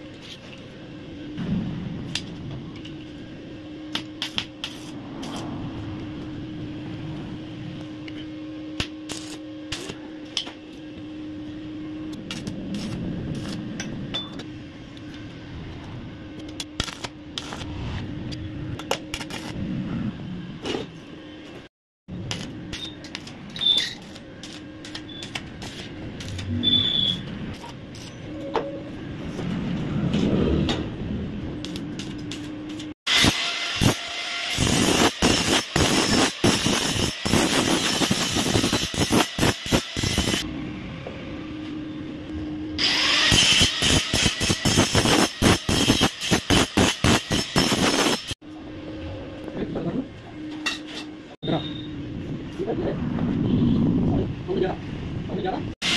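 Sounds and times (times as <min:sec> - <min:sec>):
steady low hum: 0:00.0 - 0:28.2
welding arc crackling: 0:03.9 - 0:08.0, 0:08.7 - 0:10.6, 0:12.1 - 0:13.8, 0:16.4 - 0:19.6, 0:22.1 - 0:28.3, 0:31.5 - 0:40.5, 0:42.8 - 0:48.4.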